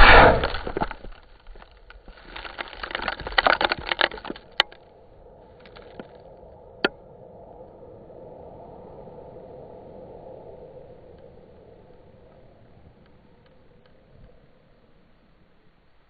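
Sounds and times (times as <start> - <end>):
sharp pops: 0.0 - 1.2
crackles and pops: 0.0 - 7.0, 10.9 - 16.0
low steady hiss: 0.0 - 16.0.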